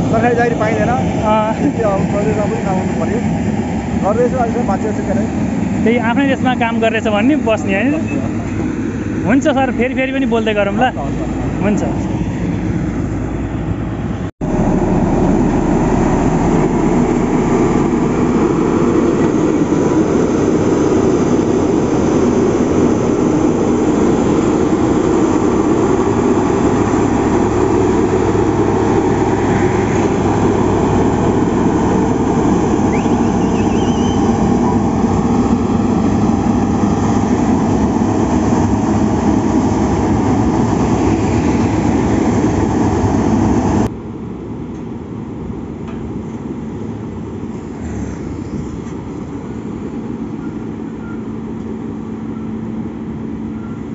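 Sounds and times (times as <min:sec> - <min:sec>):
road roller running: 0:00.0 - 0:53.9.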